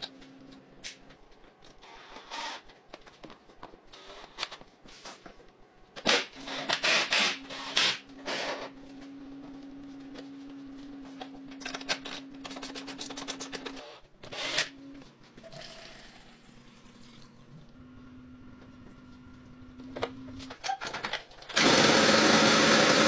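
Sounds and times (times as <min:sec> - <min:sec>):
steady low hum: 0:02.7 - 0:20.6.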